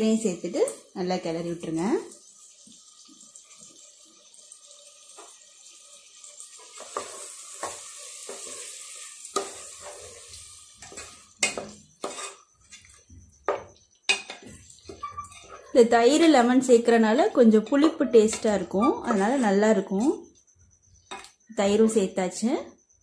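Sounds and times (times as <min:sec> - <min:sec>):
food sizzling in pot: 0:00.0 - 0:23.0
spatula scraping pot: 0:06.6 - 0:20.3
spatula knocking pot: 0:10.8 - 0:15.7, 0:17.4 - 0:20.2.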